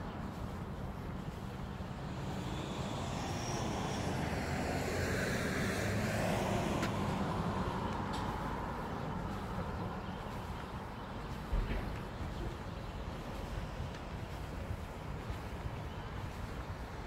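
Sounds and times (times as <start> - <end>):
low traffic rumble: 0.0 - 17.0
vehicle passing by: 1.1 - 11.5.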